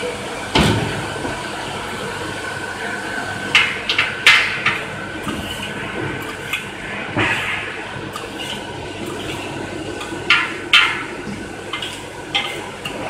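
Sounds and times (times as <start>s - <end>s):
metal scoop scraping on metal tray: 8.2s - 10.2s, 11.7s - 13.0s.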